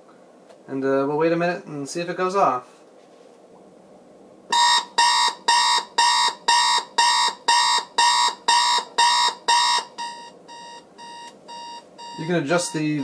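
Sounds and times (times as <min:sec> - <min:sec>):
alarm clock beeping: 0:04.5 - 0:13.0.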